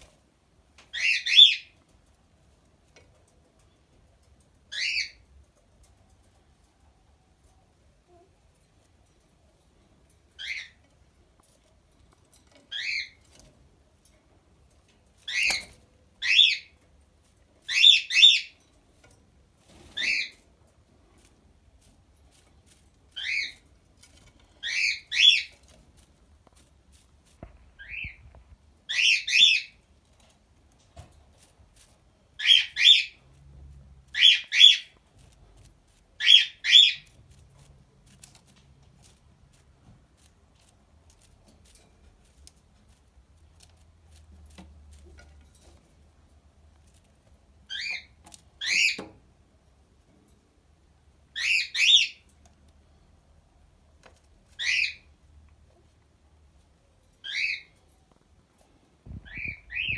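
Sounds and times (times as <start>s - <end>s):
dove squab peeping: 59.2s - 59.9s.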